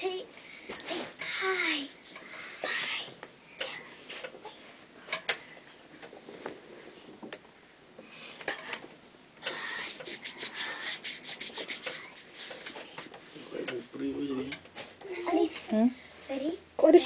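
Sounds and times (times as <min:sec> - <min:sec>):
rope swing rubbing scrapes: 0:09.9 - 0:13.5.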